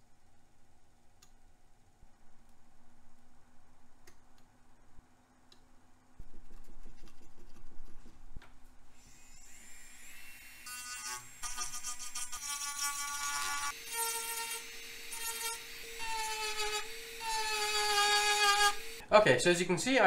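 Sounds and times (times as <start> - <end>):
rotary tool whining: 9.0 - 19.0.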